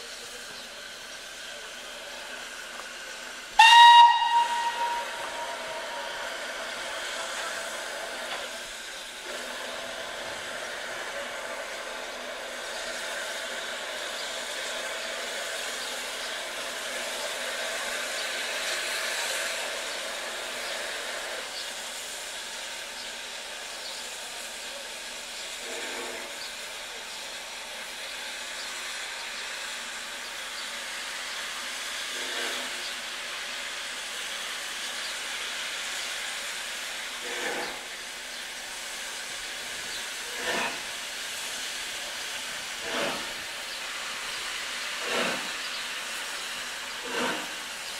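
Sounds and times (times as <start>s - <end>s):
steam locomotive hissing: 0.0s - 47.9s.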